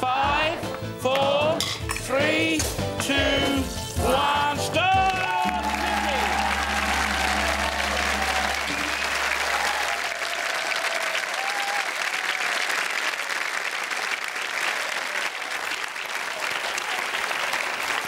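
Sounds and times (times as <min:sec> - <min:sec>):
audience applauding: 0:04.9 - 0:18.0
low hum: 0:05.6 - 0:10.0.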